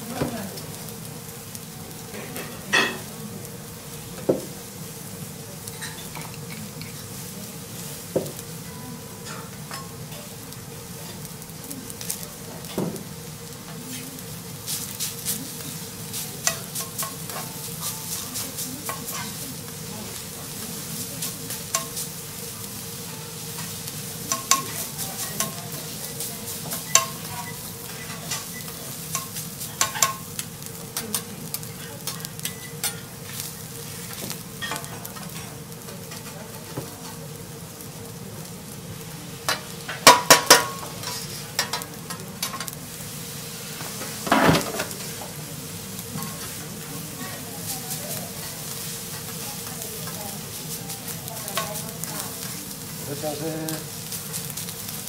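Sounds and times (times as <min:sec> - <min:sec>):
rice sizzling on a griddle: 0:00.0 - 0:55.0
steel spatulas clacking on griddle: 0:29.1 - 0:30.4, 0:39.5 - 0:42.8.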